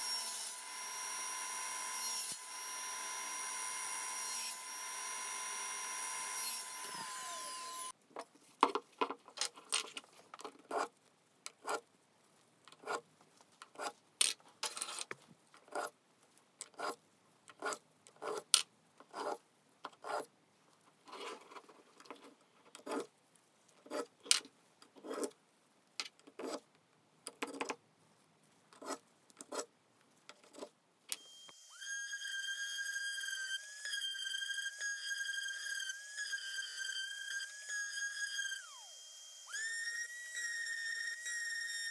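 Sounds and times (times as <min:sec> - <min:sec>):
saw motor whine: 0:00.0 - 0:07.9, 0:31.2 - 0:41.9.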